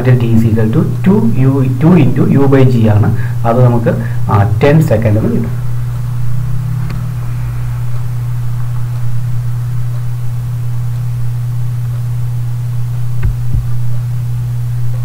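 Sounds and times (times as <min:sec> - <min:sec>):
steady low hum: 0:00.0 - 0:15.0
soft low thumps: 0:13.1 - 0:14.0.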